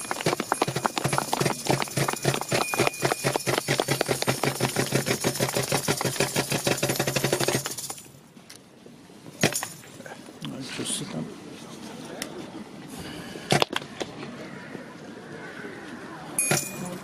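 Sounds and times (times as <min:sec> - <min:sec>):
carriage wheels rattling: 0:00.0 - 0:08.1
hooves clattering on cobblestones: 0:00.0 - 0:08.1, 0:16.4 - 0:17.0.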